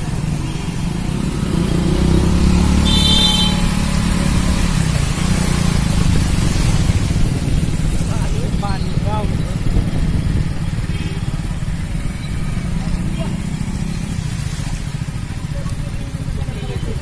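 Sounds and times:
motorcycle engine rumbling: 0.0 - 17.0
high-pitched horn beep: 2.8 - 4.0.

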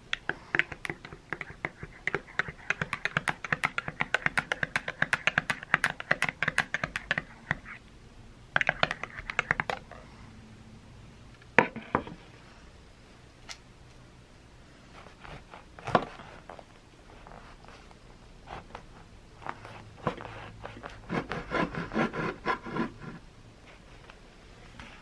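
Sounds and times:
knife sawing through bread crust: 20.1 - 23.0.

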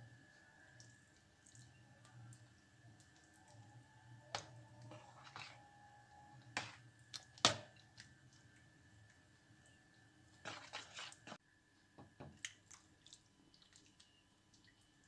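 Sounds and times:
spoon squelching in yogurt: 0.3 - 11.4.

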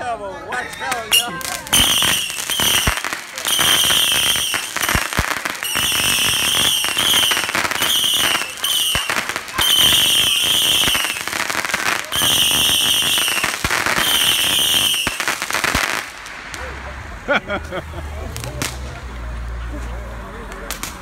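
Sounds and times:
fireworks crackling: 0.5 - 21.0
fireworks whistling: 0.7 - 16.9.

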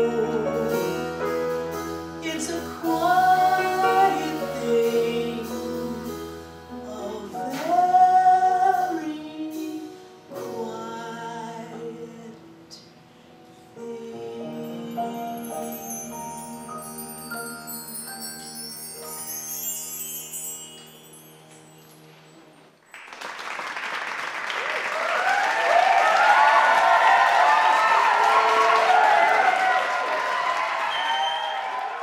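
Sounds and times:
piano: 0.0 - 32.0
woman singing into microphone: 2.2 - 6.2, 6.8 - 12.9, 13.7 - 15.8.

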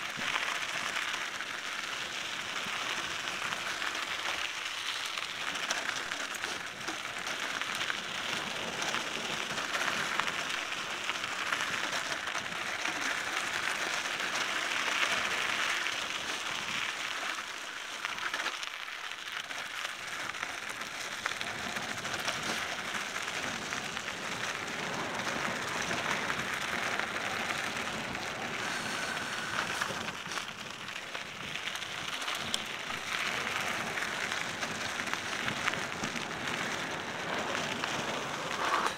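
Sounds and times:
bike tyres hissing on dirt: 0.0 - 38.9.

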